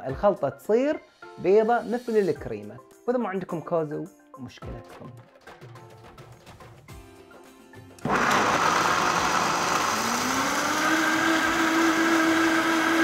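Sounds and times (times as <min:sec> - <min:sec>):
blender motor running: 0:08.0 - 0:13.0.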